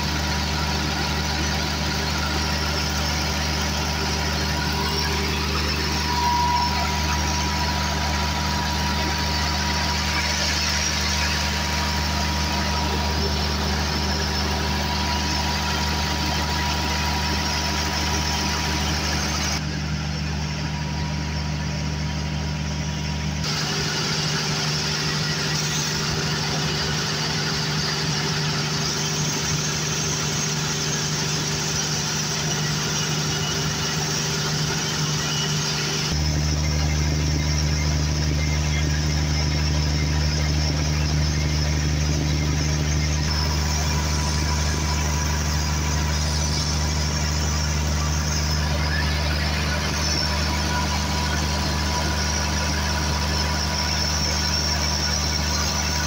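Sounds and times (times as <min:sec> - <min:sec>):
diesel generator engine running: 0:00.0 - 0:56.0.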